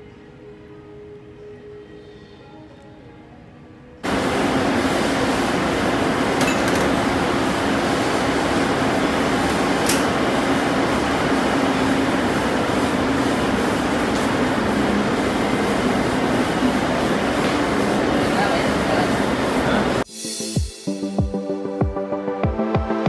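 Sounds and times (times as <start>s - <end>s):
kitchen ventilation roaring: 4.0s - 20.1s.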